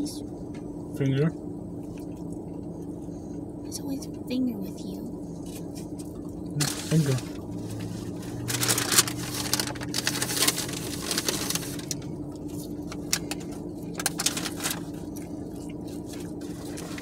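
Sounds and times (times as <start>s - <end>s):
car cabin hum: 0.0s - 17.0s
paper wrapper crinkling: 6.6s - 17.0s.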